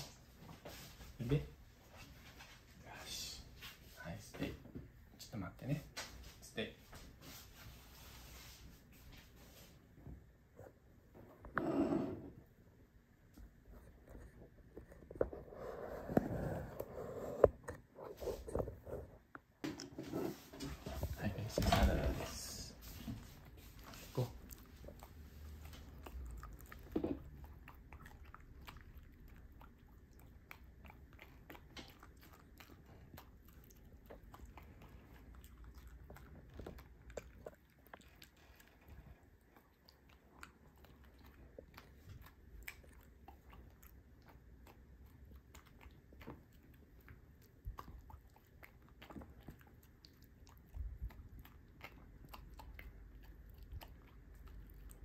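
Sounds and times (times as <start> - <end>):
dog crunching food: 23.3 - 55.0.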